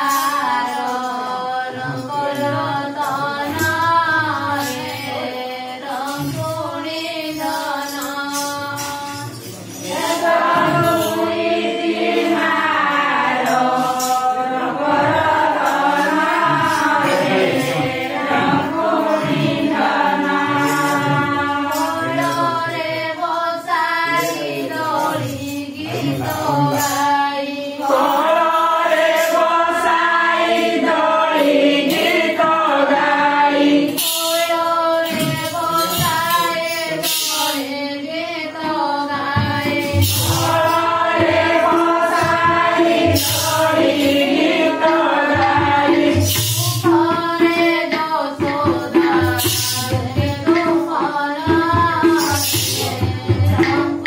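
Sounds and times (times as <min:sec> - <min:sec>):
group singing devotional song: 0:00.0 - 0:54.0.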